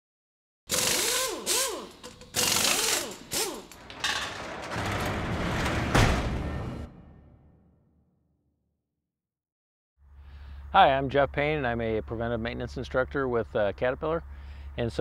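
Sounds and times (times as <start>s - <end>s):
mechanical clanking and ratcheting: 0.7s - 6.7s
low rumble: 3.9s - 7.8s.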